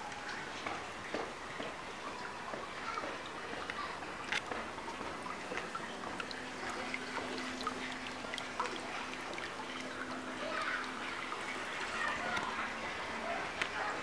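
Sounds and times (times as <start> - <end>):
water pouring into pool: 0.0 - 14.0
small splashing ticks: 0.2 - 14.0.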